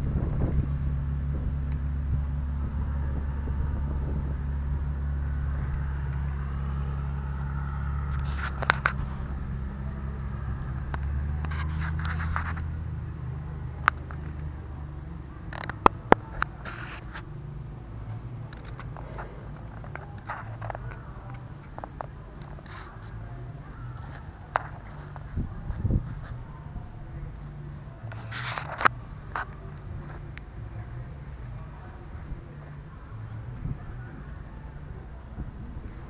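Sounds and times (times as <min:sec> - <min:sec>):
tractor engine running: 0:00.0 - 0:36.0
short scraping sounds: 0:08.1 - 0:09.4, 0:28.1 - 0:29.5.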